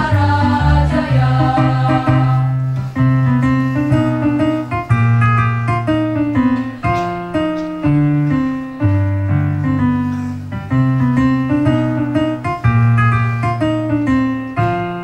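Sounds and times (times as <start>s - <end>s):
bass line: 0.0s - 2.5s
keyboard playing chords: 0.0s - 15.0s.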